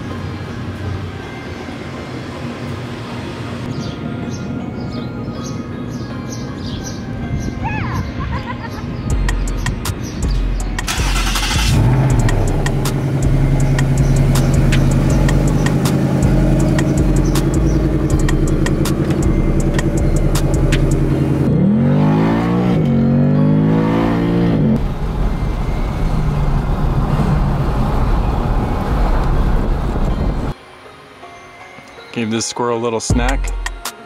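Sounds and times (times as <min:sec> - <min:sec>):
car engine starting and revving: 0:10.3 - 0:30.5.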